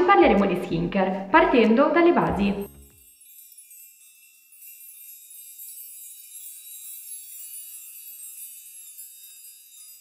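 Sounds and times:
sparkle chimes tinkling: 0:02.4 - 0:10.0.

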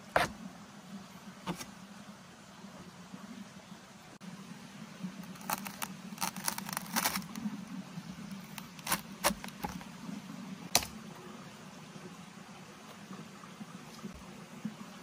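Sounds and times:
low steady hum: 0:00.0 - 0:15.0
wooden logs clicking and knocking: 0:08.6 - 0:09.9.

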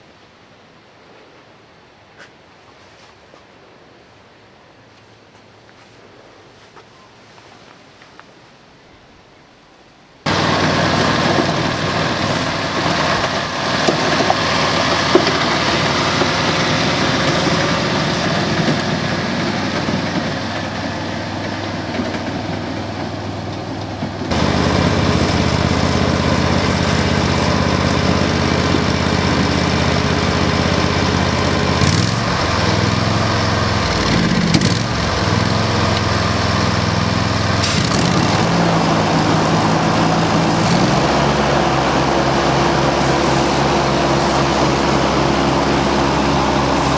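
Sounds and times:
ride-on mower engine running: 0:10.3 - 0:46.9.

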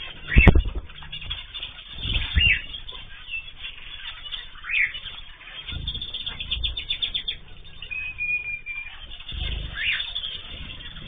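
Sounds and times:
finches chirping: 0:00.0 - 0:11.0
low rumbles: 0:05.5 - 0:11.0.

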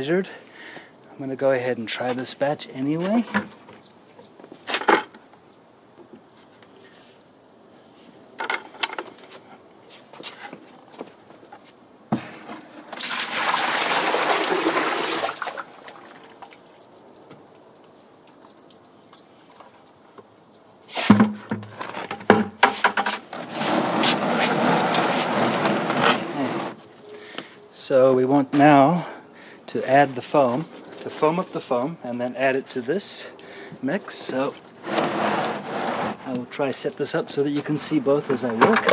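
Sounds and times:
clattering and splashing: 0:12.8 - 0:20.4
cement slurry gushing into tote: 0:12.9 - 0:17.0, 0:23.4 - 0:26.8
bucket knocks: 0:21.0 - 0:23.2.

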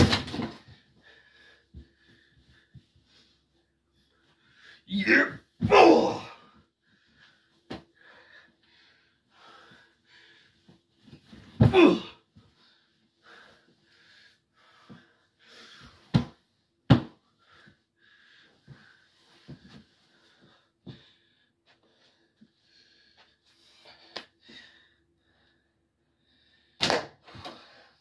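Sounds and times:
man panting hard: 0:00.6 - 0:03.5, 0:06.2 - 0:10.7, 0:12.5 - 0:16.1
man exclaiming: 0:04.9 - 0:06.3.

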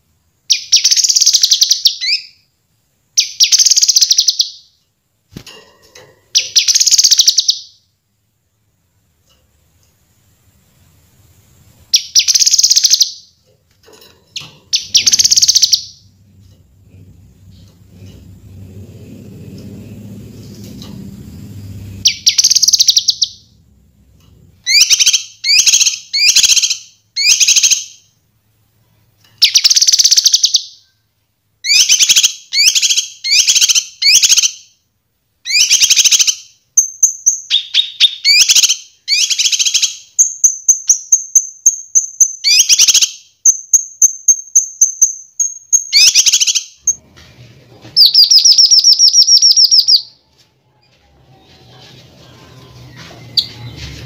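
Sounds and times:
buzzy bird trill: 0:14.3 - 0:16.1, 0:21.2 - 0:23.6, 0:48.0 - 0:50.2
bird singing trilled phrases: 0:14.4 - 0:16.1, 0:22.0 - 0:23.5, 0:48.0 - 0:50.1.

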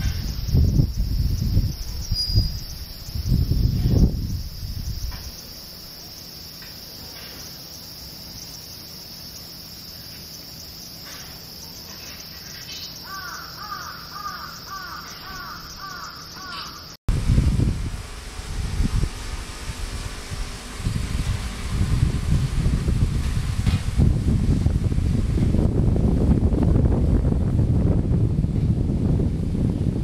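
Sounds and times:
high insect drone: 0:00.0 - 0:27.4
crow cawing: 0:13.0 - 0:16.9
loud low rumble: 0:17.1 - 0:29.6.

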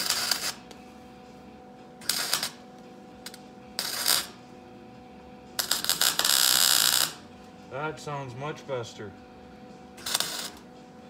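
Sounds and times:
welder crackling: 0:00.0 - 0:00.8, 0:02.0 - 0:04.4, 0:05.6 - 0:08.3, 0:10.0 - 0:10.7.

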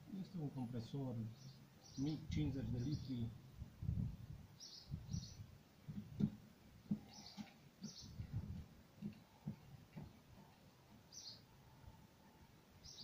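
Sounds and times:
small bird chirping: 0:01.3 - 0:03.3, 0:04.6 - 0:05.5, 0:06.9 - 0:08.4, 0:11.0 - 0:11.5, 0:12.8 - 0:13.0
soft footsteps: 0:05.8 - 0:11.1.

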